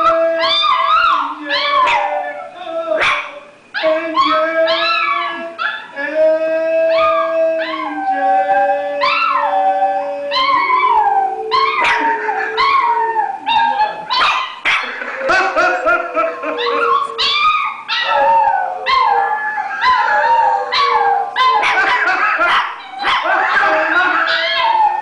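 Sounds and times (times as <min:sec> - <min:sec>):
dogs howling: 0:00.0 - 0:25.0
dogs yelping: 0:03.0 - 0:06.0, 0:10.3 - 0:25.0.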